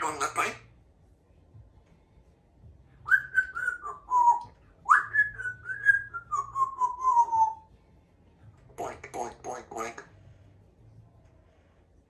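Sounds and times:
parrot whistling: 0:03.1 - 0:07.7.

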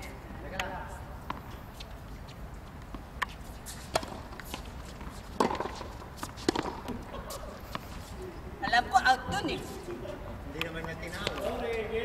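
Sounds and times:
tennis ball hit by rackets: 0:02.8 - 0:07.9, 0:10.6 - 0:11.6.

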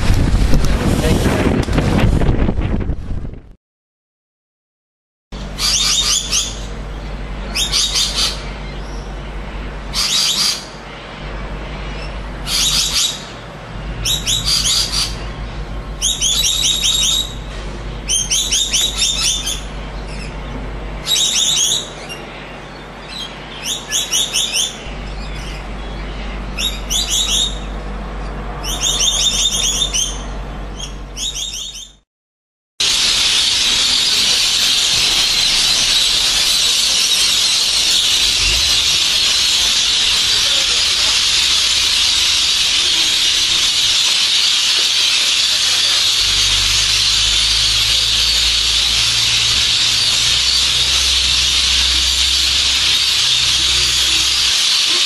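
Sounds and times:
low hum: 0:05.4 - 0:23.6, 0:32.9 - 0:55.0
lorikeets screeching: 0:05.4 - 0:28.0, 0:28.6 - 0:32.0, 0:32.8 - 0:55.0.

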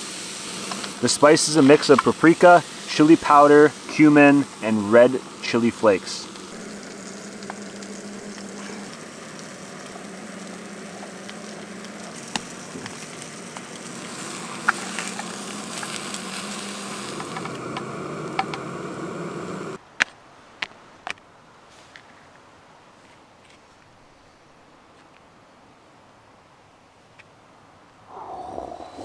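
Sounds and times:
food sizzling in a frying pan: 0:00.0 - 0:19.8.

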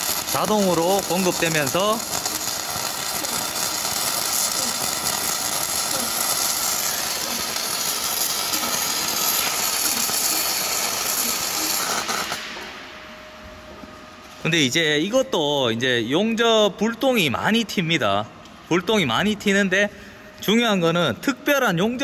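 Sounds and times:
welding arc crackling: 0:00.0 - 0:12.9.

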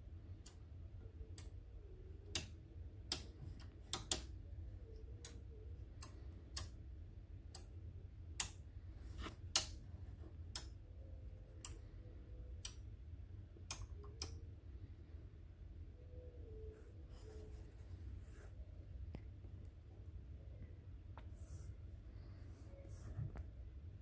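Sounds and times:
steady low hum: 0:00.0 - 0:24.0
sharp electromagnet clicks: 0:02.3 - 0:04.3.

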